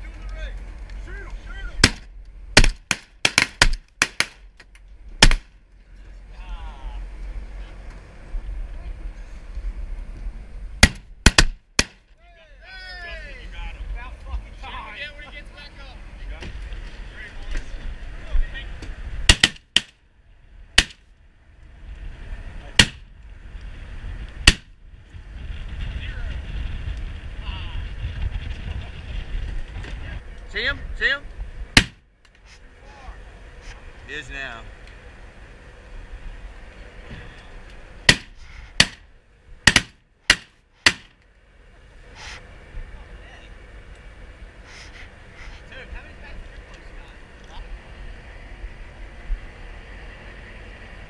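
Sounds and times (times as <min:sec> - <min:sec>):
shotguns firing: 0:01.8 - 0:04.4, 0:05.2 - 0:05.5, 0:10.8 - 0:12.0, 0:19.3 - 0:19.9, 0:31.8 - 0:32.0, 0:38.1 - 0:39.0, 0:39.7 - 0:41.1.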